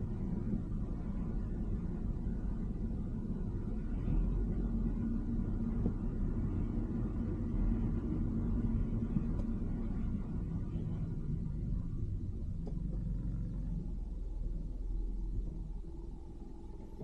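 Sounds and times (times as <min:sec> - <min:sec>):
car engine and road noise: 0:00.0 - 0:17.0.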